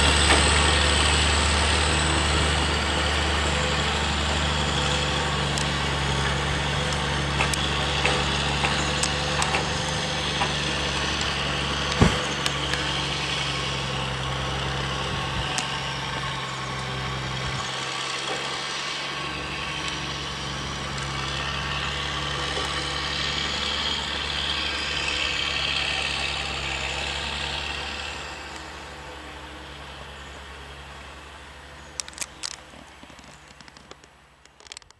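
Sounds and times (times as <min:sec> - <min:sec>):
truck engine hum: 0:00.0 - 0:34.9
knocks and rattles from truck: 0:11.8 - 0:12.7.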